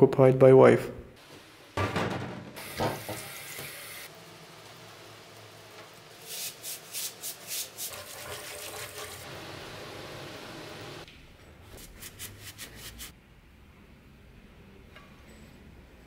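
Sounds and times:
tap water running: 0:01.2 - 0:11.1
powder being shaken: 0:06.3 - 0:09.1
scouring pad scrubbing: 0:06.3 - 0:09.3.

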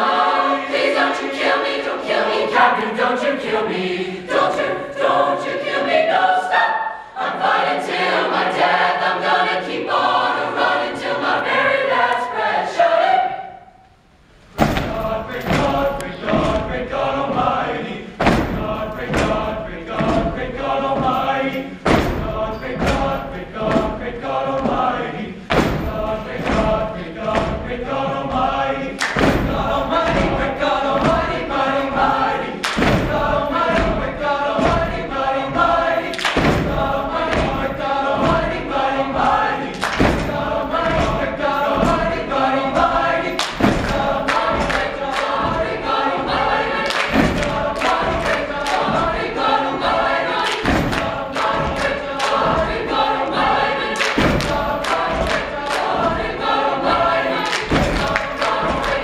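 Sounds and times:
choir singing in harmony: 0:00.0 - 0:13.9, 0:14.5 - 0:59.0
sharp percussive hits: 0:14.6 - 0:16.7, 0:21.0 - 0:23.9, 0:29.0 - 0:35.0, 0:39.1 - 0:45.7, 0:50.5 - 0:52.9.

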